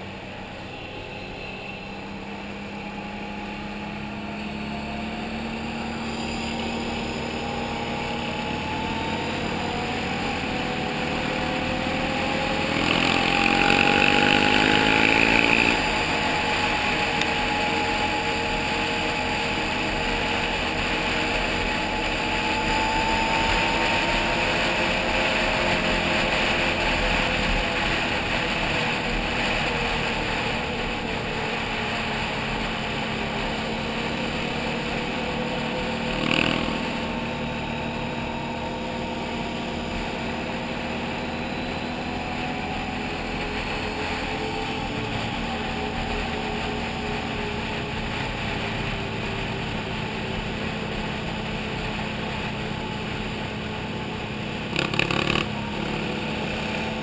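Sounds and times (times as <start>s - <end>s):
atv engine running: 0.0s - 57.0s.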